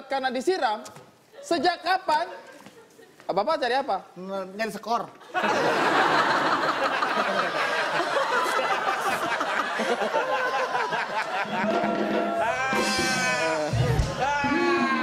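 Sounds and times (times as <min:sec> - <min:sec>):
audience laughing: 0:05.2 - 0:15.0.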